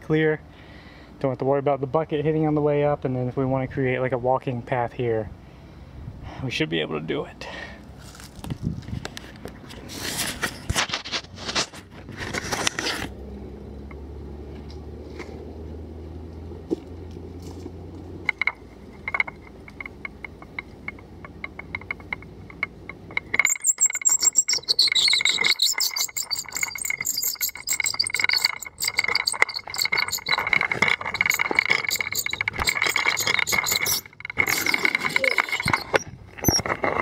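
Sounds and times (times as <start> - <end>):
pulley trolley rattling on cable: 17.5 - 37.0
pulley wheel whine: 17.8 - 37.0.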